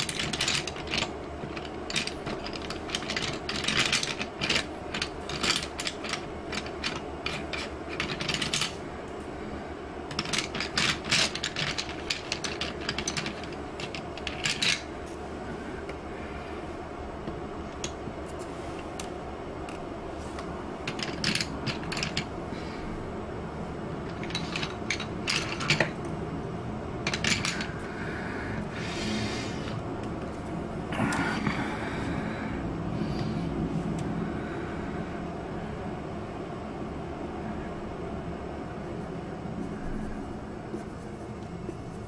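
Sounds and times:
pencils clicking and rattling: 0:00.0 - 0:08.8, 0:10.1 - 0:14.9, 0:20.8 - 0:22.3, 0:24.0 - 0:26.1, 0:27.0 - 0:27.9
steady low hum: 0:00.0 - 0:42.0.

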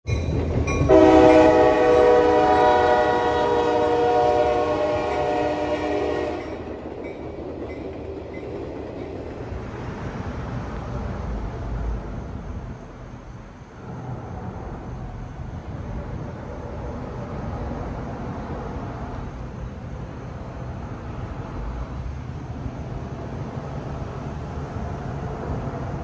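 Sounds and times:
passing train rumble: 0:00.0 - 0:26.0
locomotive air horn: 0:00.9 - 0:06.7.

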